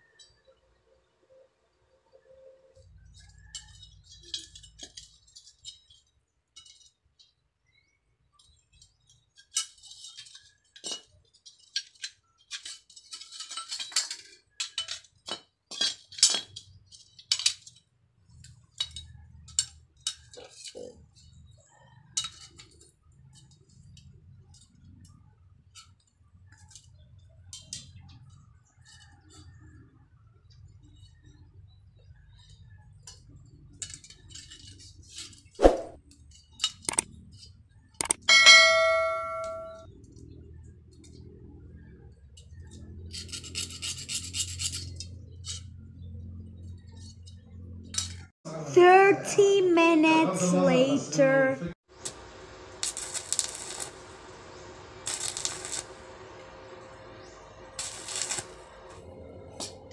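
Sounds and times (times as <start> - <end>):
metal pieces clinking: 9.4 - 17.8
hammer striking metal: 38.0 - 39.8.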